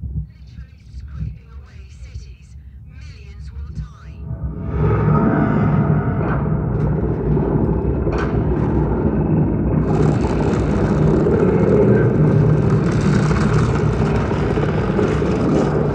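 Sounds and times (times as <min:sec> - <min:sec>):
low rumble of destruction: 0:00.0 - 0:15.9
hissing crumbling: 0:07.8 - 0:15.9.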